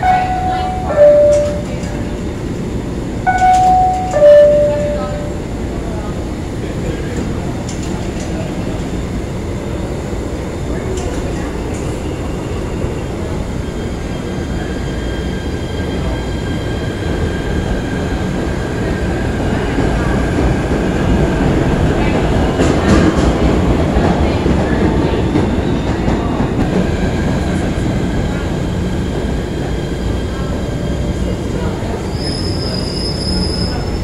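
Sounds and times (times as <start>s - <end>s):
subway train rumbling: 0.0s - 34.0s.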